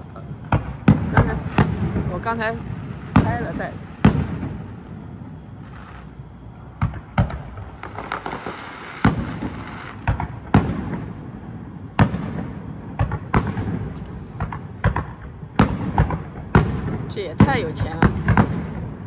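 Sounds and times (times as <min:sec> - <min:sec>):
firework shells bursting: 0:12.0 - 0:18.9.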